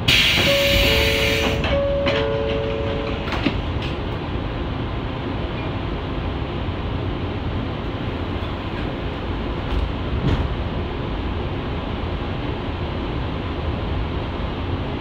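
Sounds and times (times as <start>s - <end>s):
loud air hiss: 0.0s - 1.6s
train low rumble: 0.0s - 15.0s
clunks: 0.1s - 4.1s
two-tone door chime: 0.4s - 3.5s.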